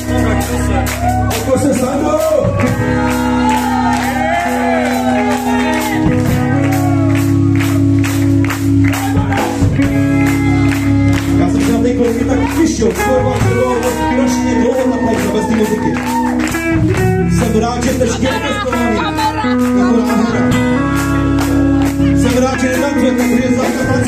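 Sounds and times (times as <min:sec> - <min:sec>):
drum kit steady beat: 0:00.0 - 0:24.0
electric guitar: 0:00.0 - 0:24.0
man singing into a microphone: 0:11.4 - 0:16.0, 0:17.2 - 0:21.3, 0:22.1 - 0:24.0.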